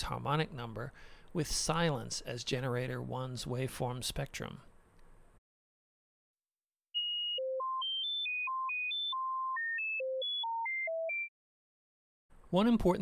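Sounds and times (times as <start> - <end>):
synthesizer tone jumping in pitch: 7.0 - 11.3.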